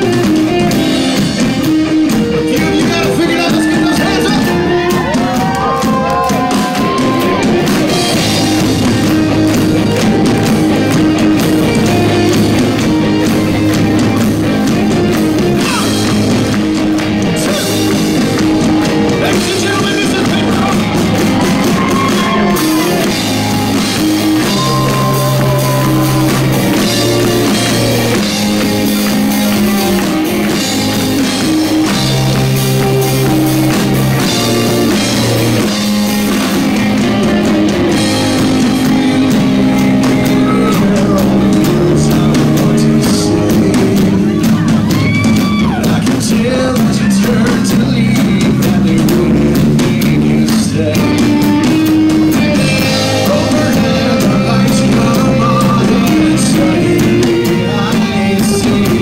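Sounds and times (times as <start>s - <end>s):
drums: 0.0s - 59.0s
electric guitar: 0.0s - 59.0s
man singing: 2.4s - 7.4s, 17.2s - 23.2s, 23.8s - 28.3s, 38.8s - 59.0s.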